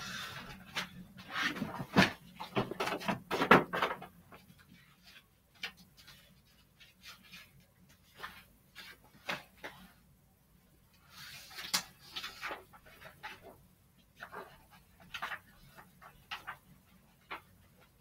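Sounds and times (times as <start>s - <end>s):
household items knocking and clattering: 1.4s - 4.4s.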